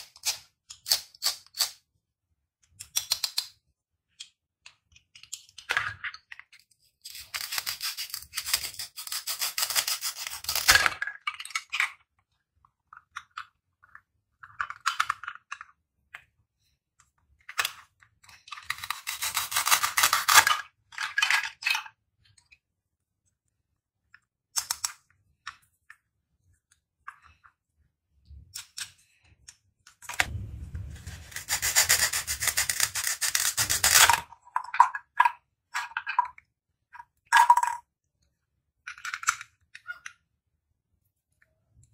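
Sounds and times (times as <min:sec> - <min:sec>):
plastic pieces clicking: 0:02.7 - 0:03.6, 0:04.2 - 0:08.8, 0:09.4 - 0:12.2, 0:12.8 - 0:16.2, 0:24.2 - 0:26.0, 0:38.8 - 0:40.2
velcro ripping apart: 0:30.2 - 0:34.2.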